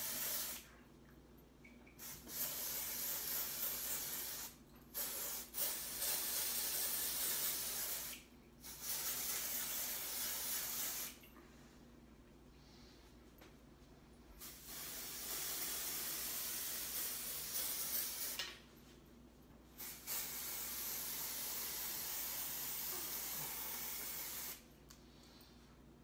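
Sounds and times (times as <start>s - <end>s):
aerosol spray hissing: 0.0s - 0.6s, 2.0s - 11.2s, 14.4s - 18.4s, 19.8s - 24.6s.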